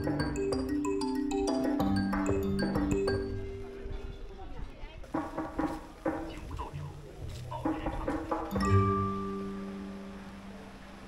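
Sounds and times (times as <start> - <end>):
music: 0.0 - 11.0
people talking: 2.4 - 9.1, 9.8 - 11.0.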